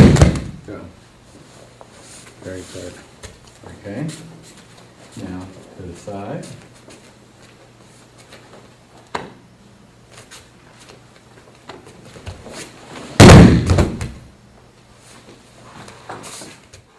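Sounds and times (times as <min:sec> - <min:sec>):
body thudding on judo mat: 0:00.0 - 0:00.6, 0:13.0 - 0:14.3.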